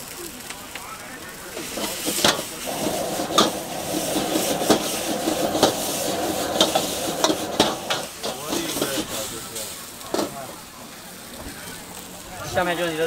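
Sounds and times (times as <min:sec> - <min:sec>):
steady sizzle: 0:00.0 - 0:13.0
metal ladle clanking on wok: 0:01.6 - 0:09.1.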